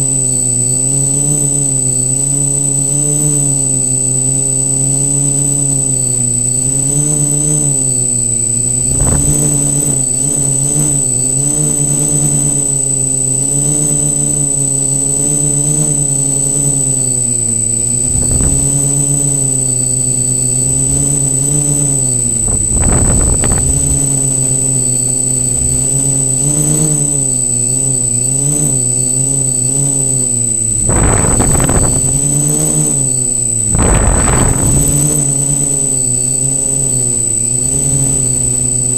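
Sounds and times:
drone propellers buzzing: 0:00.0 - 0:38.9
thin high whine: 0:00.0 - 0:38.9
wind rumbling on microphone: 0:08.5 - 0:12.6, 0:17.7 - 0:27.4, 0:30.3 - 0:38.8.

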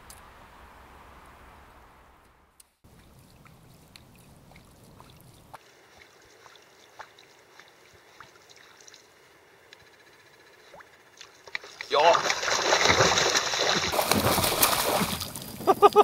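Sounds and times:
lake water trickling and lapping: 0:02.8 - 0:16.0.

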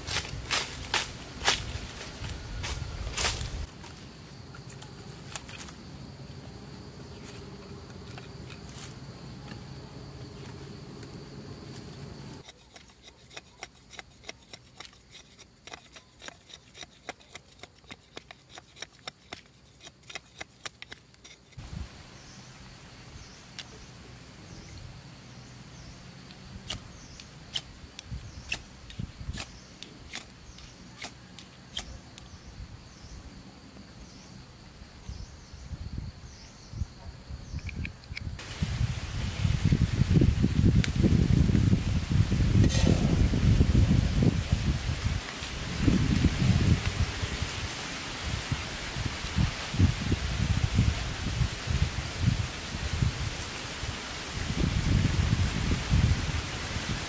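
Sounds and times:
insects chirping: 0:00.0 - 0:57.0
machete scraping bamboo: 0:04.6 - 0:05.8, 0:07.2 - 0:09.6, 0:11.6 - 0:21.6, 0:28.4 - 0:32.0, 0:42.6 - 0:43.5.

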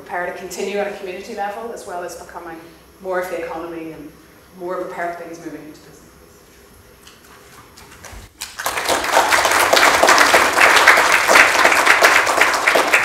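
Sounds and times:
audience applause: 0:08.4 - 0:13.0.

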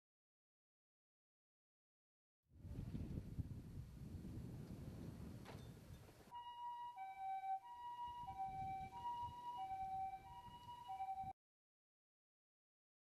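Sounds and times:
two-tone ambulance siren: 0:06.3 - 0:11.4.

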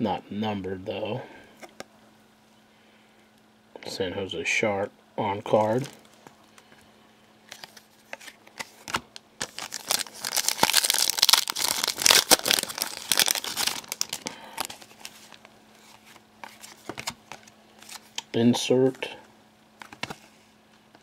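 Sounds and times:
wrapper crinkling and tearing: 0:05.6 - 0:06.4, 0:07.5 - 0:18.3.

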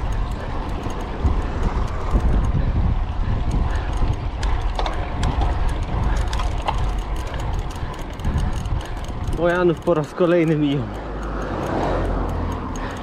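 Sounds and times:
bicycle clicks and rattles: 0:00.0 - 0:13.0
wind and road rumble: 0:00.0 - 0:13.0.

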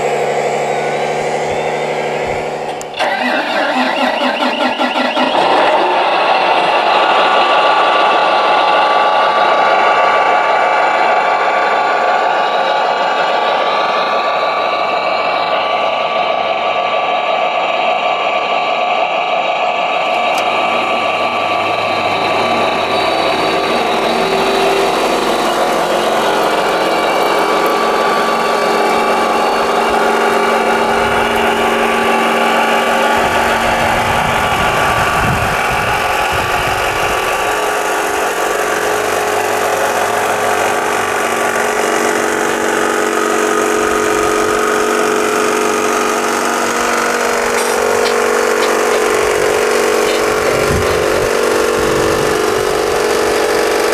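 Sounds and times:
vibrating screen motor whine: 0:00.0 - 0:02.8.

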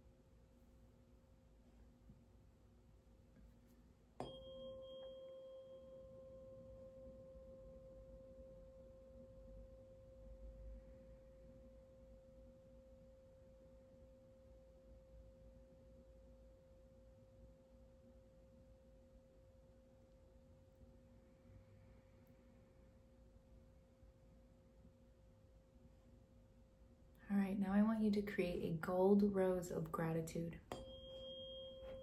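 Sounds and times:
tuning fork ringing: 0:04.2 - 0:17.6, 0:30.7 - 0:32.0.

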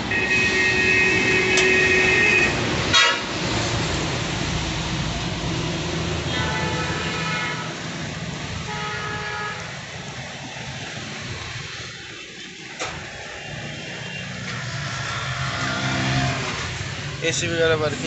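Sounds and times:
car horn toots: 0:00.1 - 0:03.3.

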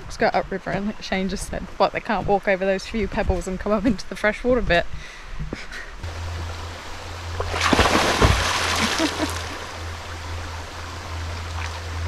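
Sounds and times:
flowing water: 0:06.0 - 0:12.0
person splashing into water: 0:07.4 - 0:09.8.

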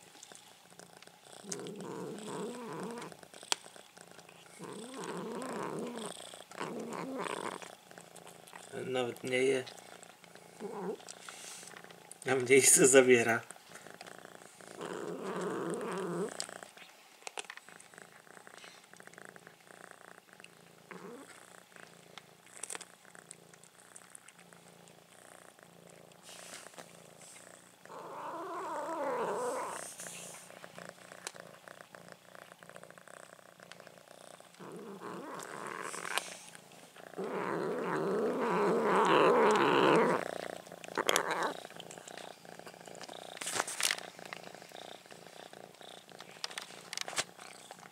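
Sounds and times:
cat purring: 0:00.0 - 0:47.9.

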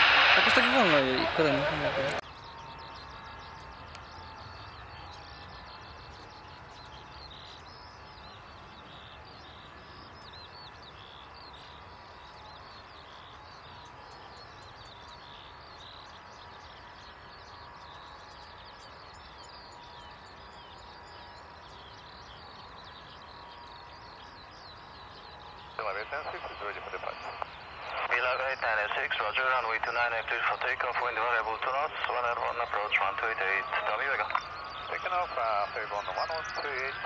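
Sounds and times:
faint steady whine: 0:00.0 - 0:37.0
small birds chirping: 0:00.0 - 0:37.0
low rumble and hiss: 0:25.3 - 0:37.0.

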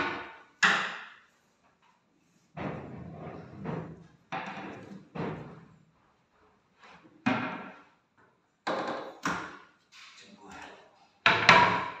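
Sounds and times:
cabinet doors knocking shut: 0:11.3 - 0:12.0.

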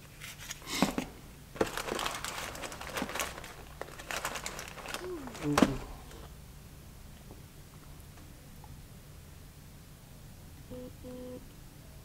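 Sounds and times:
paper wrapper crinkling: 0:01.6 - 0:06.2.

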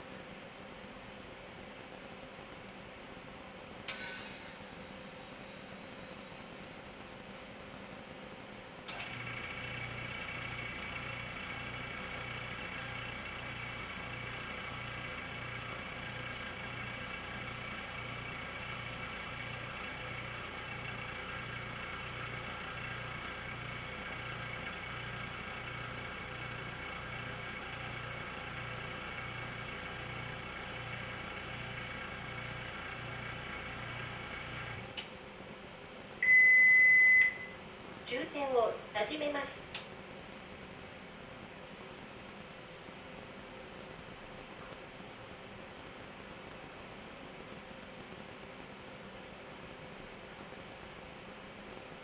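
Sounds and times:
machine humming with whining tones: 0:00.0 - 0:38.6.

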